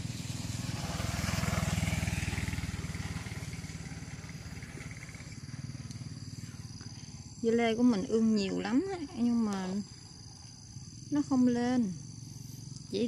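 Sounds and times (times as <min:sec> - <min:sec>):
motorbike engine passing: 0:00.0 - 0:13.0.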